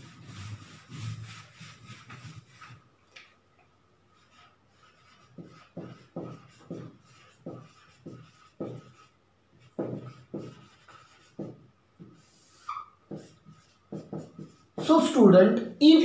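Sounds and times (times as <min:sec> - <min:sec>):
marker pen writing on whiteboard: 0:04.2 - 0:15.2.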